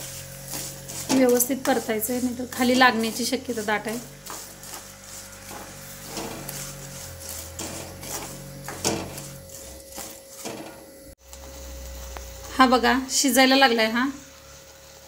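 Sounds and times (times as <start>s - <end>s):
spatula scraping a pan: 0.0s - 11.2s
faint sizzle: 0.0s - 15.0s.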